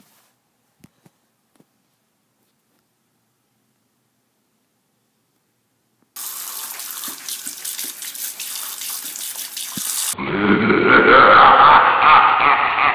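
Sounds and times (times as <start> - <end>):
tap water splashing into sink: 6.2 - 10.2
muffled sound with pitched tones: 10.2 - 12.9.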